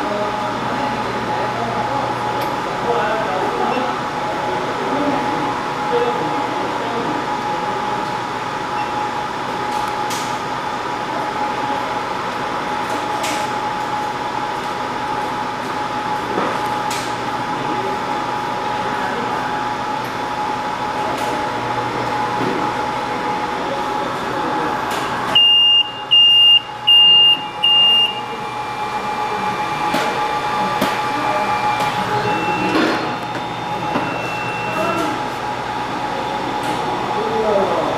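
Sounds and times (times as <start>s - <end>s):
steady fan hum: 0.0s - 37.9s
high electronic beeps: 25.4s - 28.3s, 31.6s - 35.2s.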